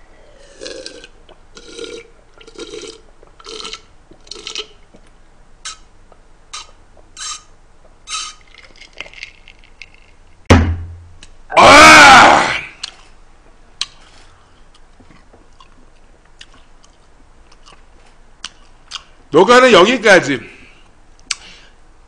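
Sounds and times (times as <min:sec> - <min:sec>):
person gulping a drink: 0:00.3 - 0:04.8, 0:08.1 - 0:10.1.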